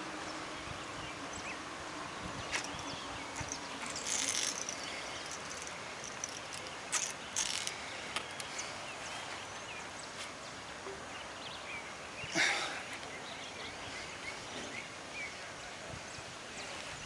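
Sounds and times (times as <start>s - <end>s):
outdoor background noise: 0.0s - 17.0s
scratchy rustles: 3.4s - 7.8s.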